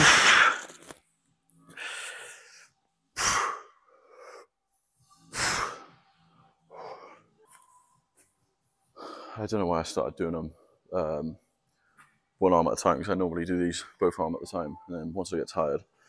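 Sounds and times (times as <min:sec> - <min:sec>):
man breathing quietly: 0:01.7 - 0:07.9.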